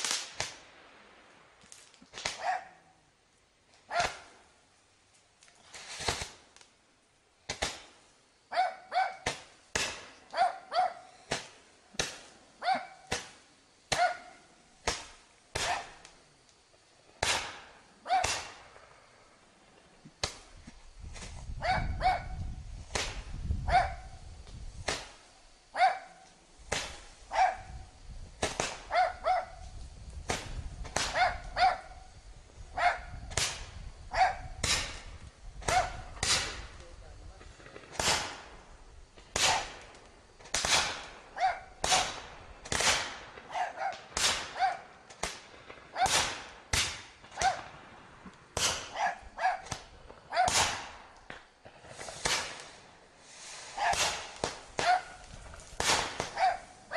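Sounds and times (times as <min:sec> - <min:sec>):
firework pops with ringing tail: 0:13.0 - 0:16.2, 0:17.2 - 0:18.8, 0:20.2 - 0:25.3, 0:26.7 - 0:32.0, 0:32.6 - 0:52.9, 0:53.7 - 0:56.7.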